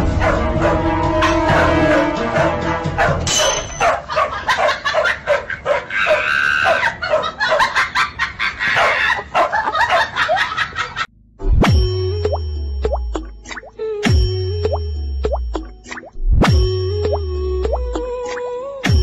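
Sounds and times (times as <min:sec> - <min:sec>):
dogs barking and yelping: 0:00.0 - 0:11.0.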